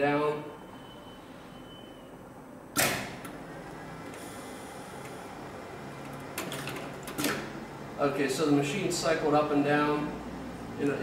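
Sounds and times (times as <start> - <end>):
faint high whine: 0.4 - 2.3.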